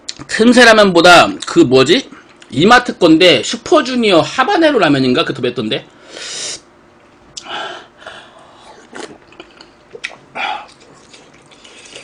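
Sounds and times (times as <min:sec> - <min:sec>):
wet mouth clicks: 0:08.8 - 0:12.0.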